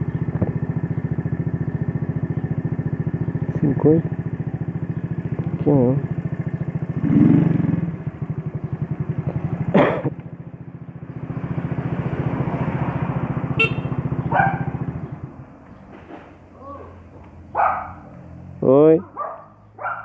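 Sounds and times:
scooter engine idling: 0.0s - 20.0s
dog barking: 14.3s - 14.8s, 17.5s - 18.1s, 19.0s - 20.0s.

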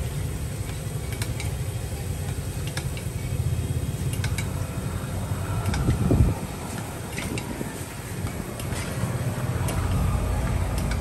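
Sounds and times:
steady low rumble: 0.0s - 11.0s.

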